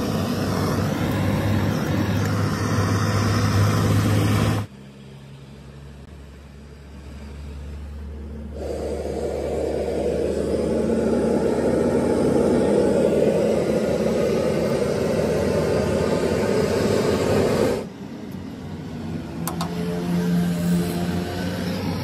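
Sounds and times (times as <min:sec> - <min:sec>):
gas torch flame rushing: 0:00.0 - 0:04.7, 0:08.3 - 0:18.0, 0:19.4 - 0:22.0.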